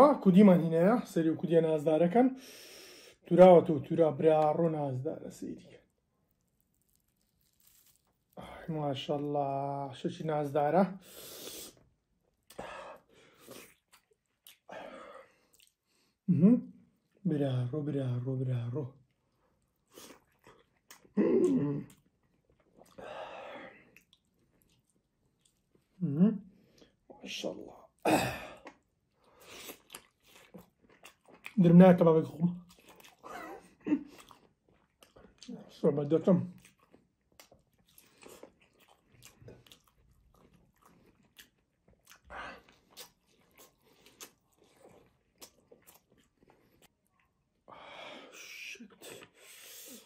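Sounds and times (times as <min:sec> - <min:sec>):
chewing food: 0:05.7 - 0:08.4, 0:13.4 - 0:14.7, 0:15.4 - 0:16.0, 0:19.0 - 0:21.2, 0:21.8 - 0:23.0, 0:23.8 - 0:26.0, 0:28.6 - 0:35.7, 0:36.4 - 0:47.6
loud bite: 0:06.3 - 0:08.4.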